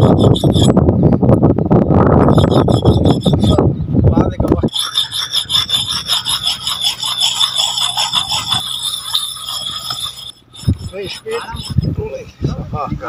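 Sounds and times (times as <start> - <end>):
axe blade scraping on stone: 0.0 - 0.8, 2.3 - 3.6, 4.7 - 11.9.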